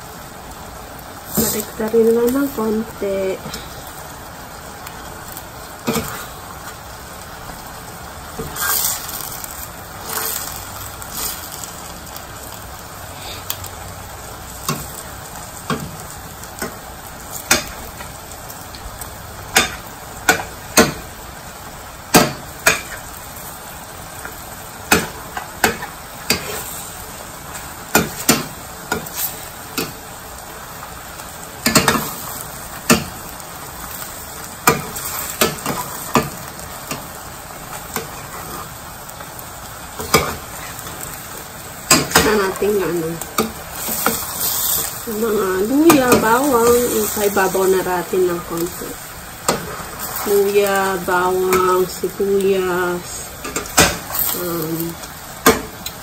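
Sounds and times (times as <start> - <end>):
chicken sizzling in a pan: 0.0 - 56.0
metal spoon scraping a pan: 8.4 - 9.3, 24.9 - 27.0.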